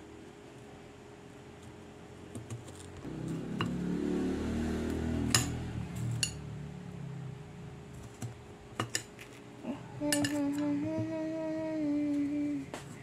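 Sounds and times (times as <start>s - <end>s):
person humming: 9.6s - 13.0s.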